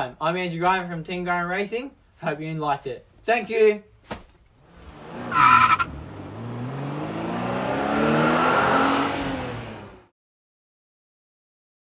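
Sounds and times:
kart engine revving past: 4.7s - 10.1s.

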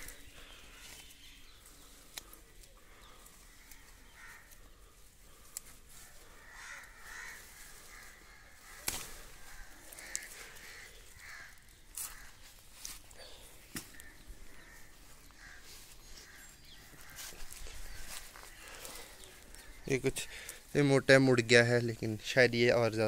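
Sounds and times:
faint bird calls: 0.0s - 20.8s
leaves rustling: 0.0s - 23.0s
plant stems snapping: 2.0s - 2.8s, 8.6s - 14.6s.

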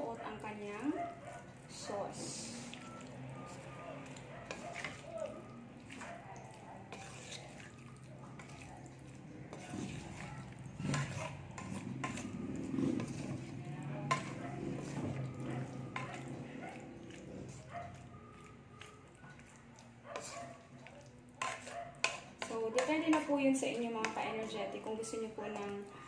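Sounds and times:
wooden spatula scraping frying pan: 6.9s - 8.7s, 9.5s - 16.6s, 21.4s - 25.9s.

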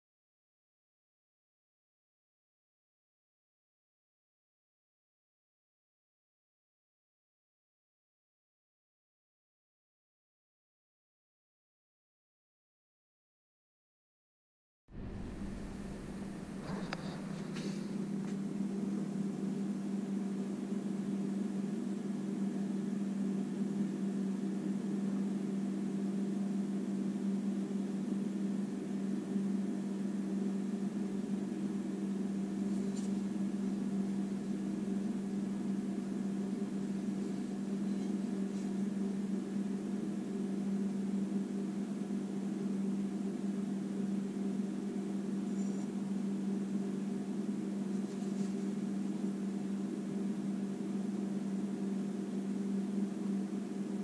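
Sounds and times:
low mechanical hum: 14.9s - 54.0s.

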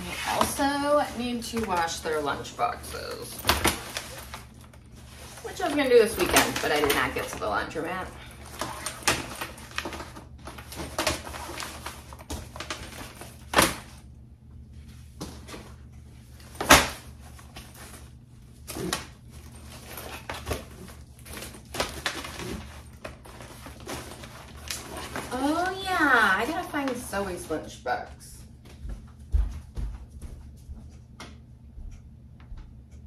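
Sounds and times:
lunch box rustling: 0.0s - 14.0s, 15.2s - 27.5s.

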